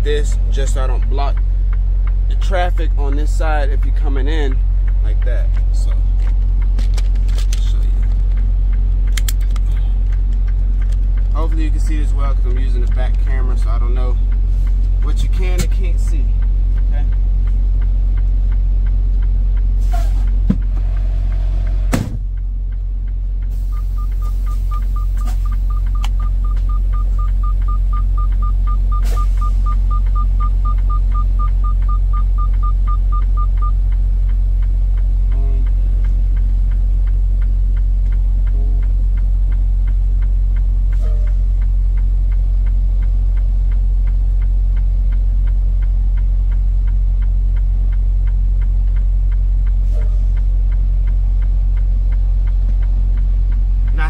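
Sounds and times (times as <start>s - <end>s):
diesel truck engine rumbling: 0.0s - 54.0s
sharp knock: 21.9s - 22.3s
fast high electronic beeping: 23.7s - 33.8s.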